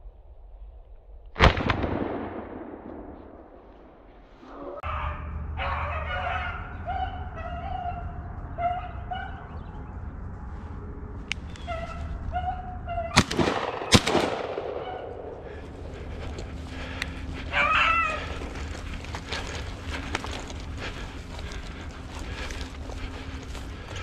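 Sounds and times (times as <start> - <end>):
gunshots with echo: 1.4 - 4.1, 13.1 - 17.2
dog baying: 4.4 - 13.2, 14.8 - 24.0.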